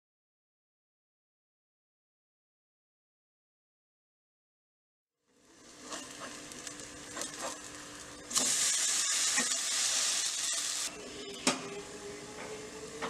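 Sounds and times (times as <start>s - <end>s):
batter sizzling in a pan: 5.3s - 10.9s
spatula scraping a pan: 5.8s - 6.4s, 7.1s - 7.6s, 8.4s - 10.9s.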